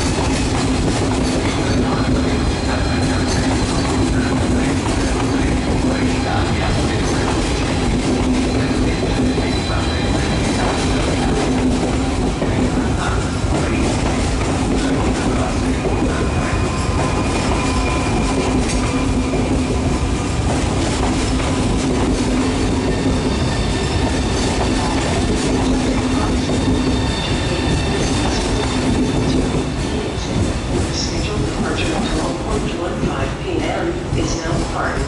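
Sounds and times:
train rolling noise: 0.0s - 35.0s.

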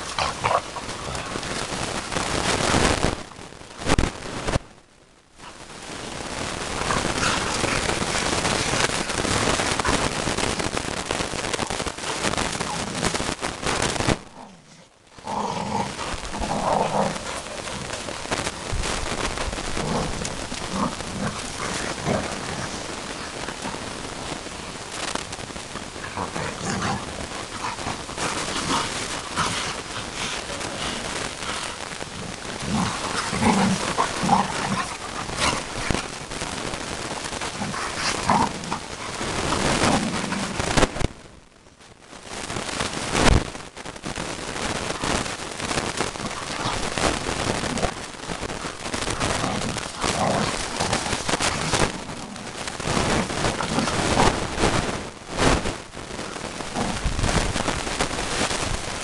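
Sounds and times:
dogs growling: 0.0s - 2.1s, 6.6s - 10.5s, 14.4s - 18.8s, 19.5s - 25.0s, 25.8s - 36.5s, 37.2s - 40.7s, 46.1s - 54.7s
dense crackling noise: 0.0s - 59.0s.

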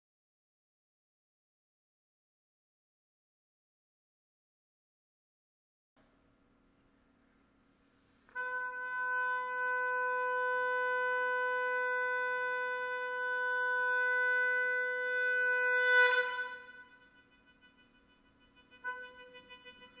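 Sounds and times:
oboe long steady note: 8.3s - 20.0s.

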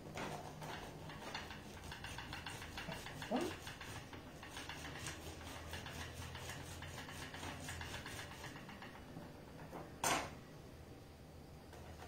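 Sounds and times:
lemon rubbing on citrus juicer: 0.4s - 9.0s.

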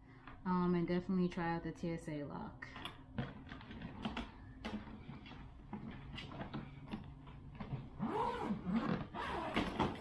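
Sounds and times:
suitcase clicks and knocks: 9.0s - 10.0s.

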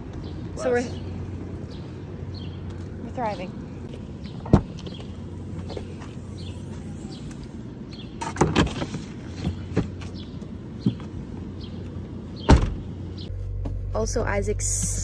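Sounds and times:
outdoor background hum: 0.0s - 15.0s
suitcase thumping into car: 12.4s - 12.8s.

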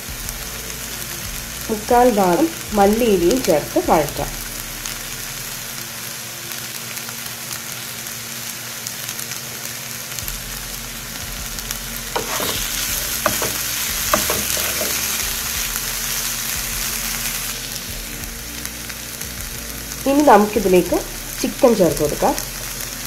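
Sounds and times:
vegetables sizzling in a frying pan: 0.0s - 23.0s
spatula knocking and scraping pan: 12.2s - 15.2s.

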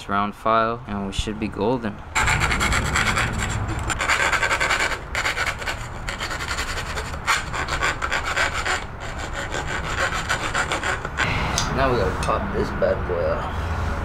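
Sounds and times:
round file rasping on metal tube: 2.2s - 11.3s.

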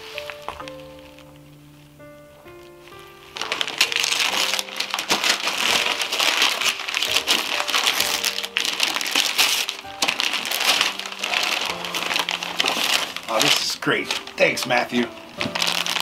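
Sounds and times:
wrapping paper tearing and crinkling: 0.0s - 1.7s, 2.4s - 16.0s
background music with held notes: 0.0s - 16.0s.

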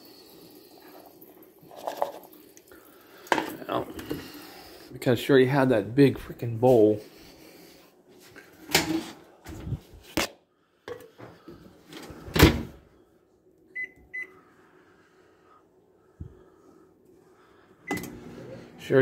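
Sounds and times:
microwave keypad beeps: 13.8s - 14.4s
microwave oven hum: 17.8s - 19.0s.

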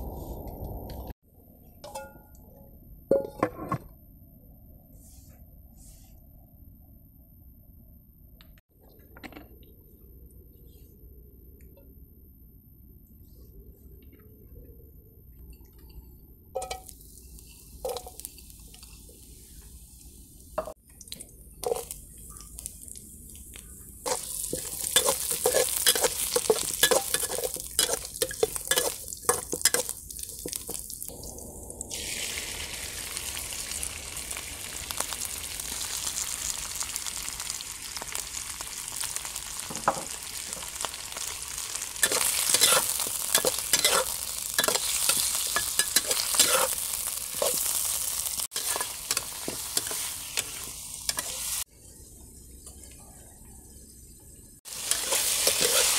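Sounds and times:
oil sizzling in a wok: 16.6s - 55.9s
metal spatula scraping wok: 24.1s - 30.7s, 42.0s - 51.6s, 54.7s - 55.9s.

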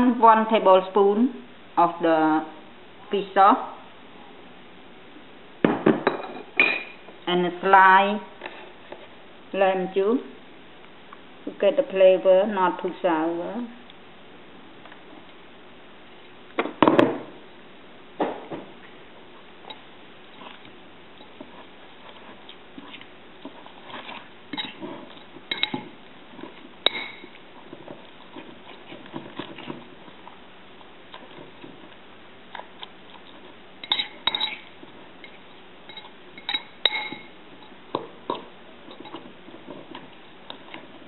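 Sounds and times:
metal utensil stirring in bowl: 21.2s - 30.4s, 31.1s - 41.0s.

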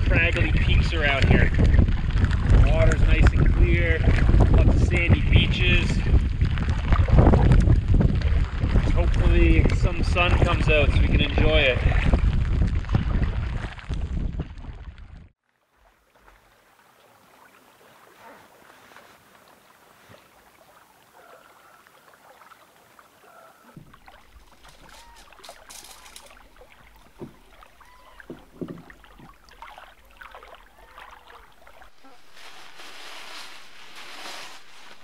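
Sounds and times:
light wind: 0.0s - 35.0s
water lapping: 0.2s - 35.0s
nylon sack rustling: 23.8s - 35.0s
scattered knocks: 28.3s - 29.4s.

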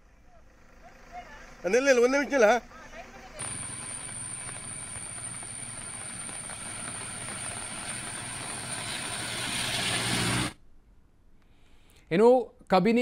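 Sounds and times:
low hum: 3.4s - 10.6s
thin high whine: 3.4s - 10.6s.

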